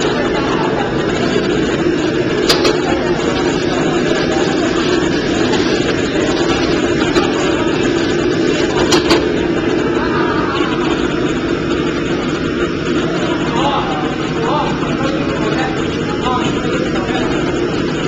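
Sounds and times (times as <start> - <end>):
gas burner roaring: 0.0 - 18.0.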